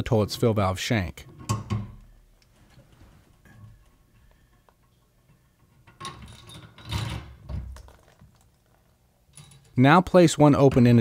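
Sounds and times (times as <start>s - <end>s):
hose scraping and rattling: 2.6s - 9.8s.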